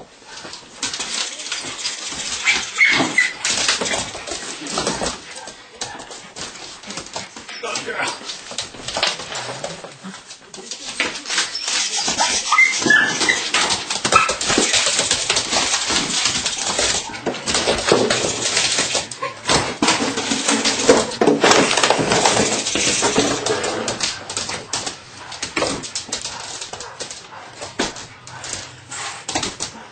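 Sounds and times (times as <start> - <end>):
rustling and scuffling: 0.0 - 29.9
puppy whimpering and yipping: 2.4 - 3.6, 11.4 - 14.8.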